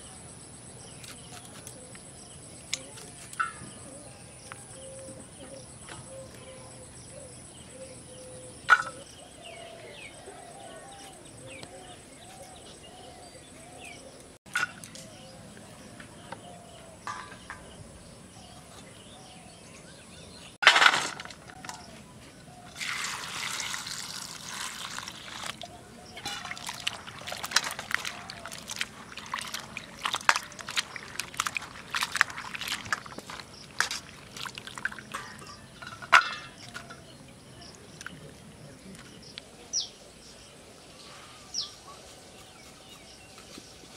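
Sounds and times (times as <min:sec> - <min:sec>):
water splashing in a bowl: 0:22.7 - 0:35.6.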